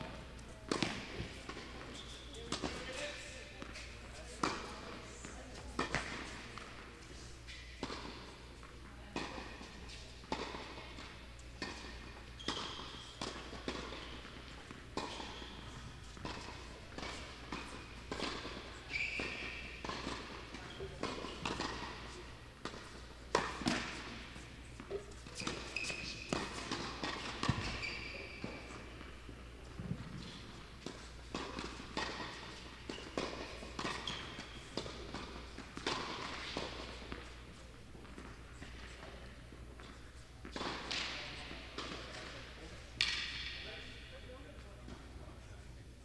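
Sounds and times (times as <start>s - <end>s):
shoe squeaks: 1.2s - 4.4s, 12.2s - 13.2s, 15.1s - 18.1s, 18.8s - 19.8s, 20.6s - 22.2s, 24.9s - 29.0s, 32.2s - 34.8s.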